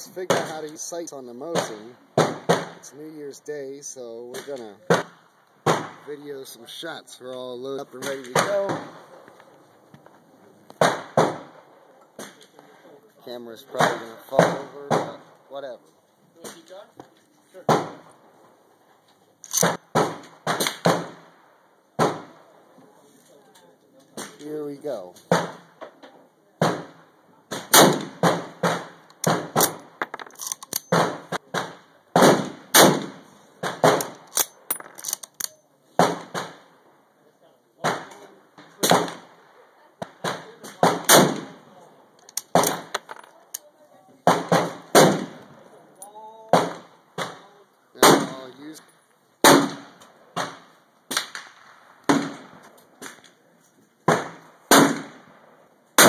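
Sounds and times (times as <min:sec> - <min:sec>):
gunshots: 0:00.2 - 0:00.7, 0:01.4 - 0:03.0, 0:04.3 - 0:06.4, 0:07.9 - 0:09.2, 0:10.8 - 0:12.5, 0:13.7 - 0:15.3, 0:17.6 - 0:18.1, 0:19.5 - 0:22.5, 0:25.2 - 0:25.8, 0:26.6 - 0:34.9, 0:36.0 - 0:36.8, 0:37.8 - 0:41.7, 0:42.4 - 0:43.1, 0:44.2 - 0:45.6, 0:46.5 - 0:48.5, 0:49.4 - 0:53.2, 0:54.0 - 0:56.0
rapid gunfire: 0:27.6 - 0:29.7, 0:30.9 - 0:34.1.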